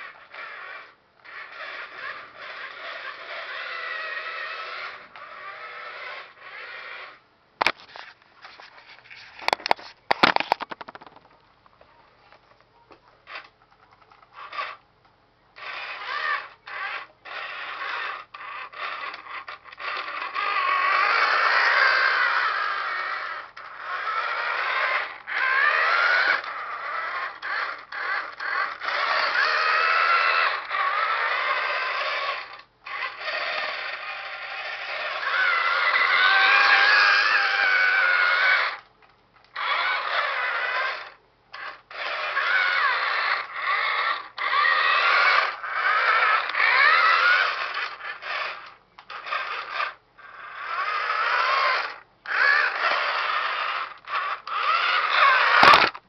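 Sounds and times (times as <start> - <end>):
toy truck motor whining: 0.0 - 11.2, 13.2 - 14.8, 15.5 - 56.0
sharp clicks and knocks: 9.3 - 11.8, 55.6 - 56.0.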